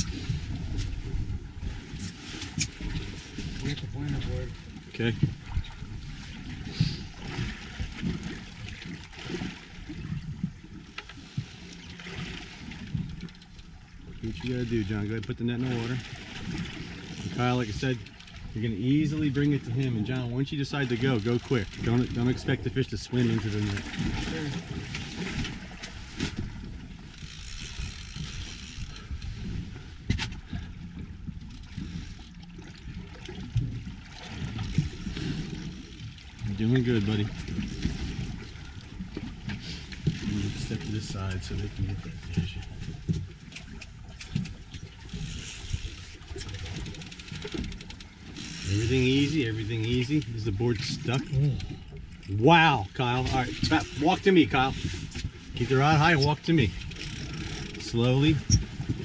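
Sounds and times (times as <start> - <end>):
water lapping against boat hull: 0.0 - 59.0.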